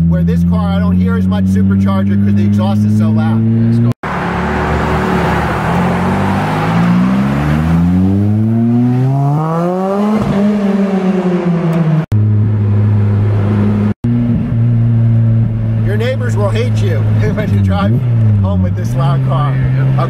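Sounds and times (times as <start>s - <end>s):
car engine accelerating: 0.0s - 20.0s.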